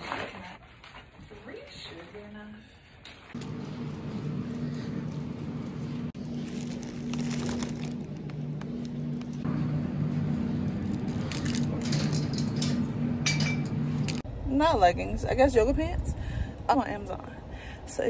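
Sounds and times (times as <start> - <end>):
small clinks and rattles: 10.6 - 14.2.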